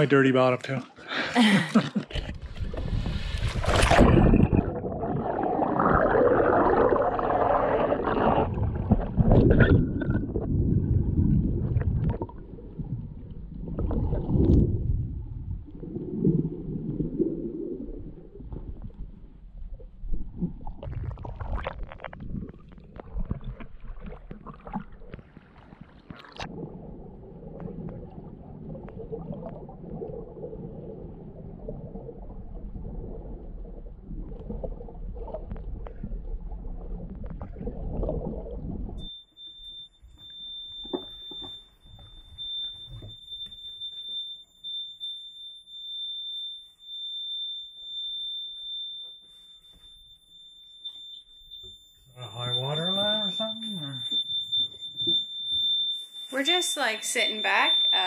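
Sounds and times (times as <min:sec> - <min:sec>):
high-pitched electronic alarm tone: 0:39.0 - 0:58.0
muffled underwater noise: 0:52.2 - 0:54.2.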